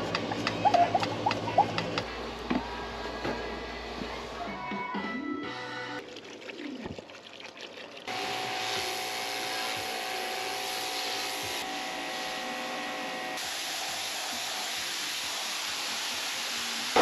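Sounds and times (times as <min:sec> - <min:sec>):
pressure washer spraying water: 0:08.1 - 0:12.4, 0:13.4 - 0:17.0
pressure washer machine whine: 0:08.1 - 0:17.0.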